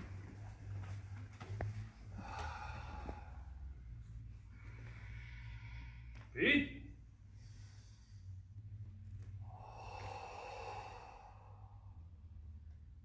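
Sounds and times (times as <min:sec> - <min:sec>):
steady low hum: 0:00.0 - 0:13.0
long faint exhale: 0:02.1 - 0:03.6, 0:04.6 - 0:06.2, 0:09.4 - 0:12.2.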